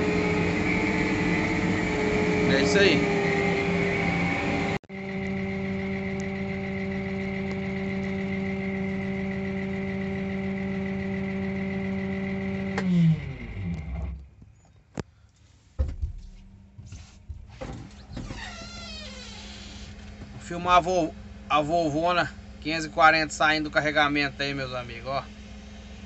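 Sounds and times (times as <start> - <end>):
tractor engine running: 4.6 - 14.4.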